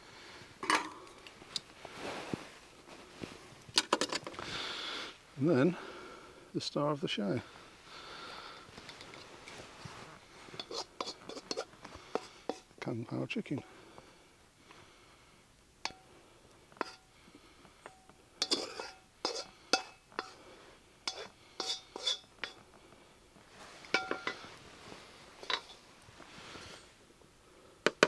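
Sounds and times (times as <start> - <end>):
spatula scraping a metal wok: 10.4 - 12.7, 16.8 - 17.1, 18.4 - 22.6, 25.4 - 25.8.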